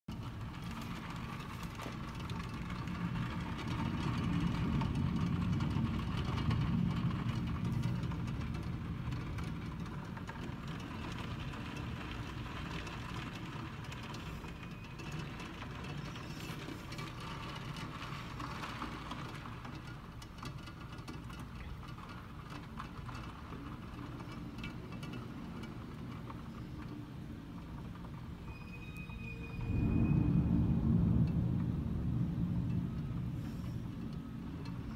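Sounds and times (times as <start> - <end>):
city traffic rumble: 0.1 - 34.9
heavy rain falling: 29.6 - 34.9.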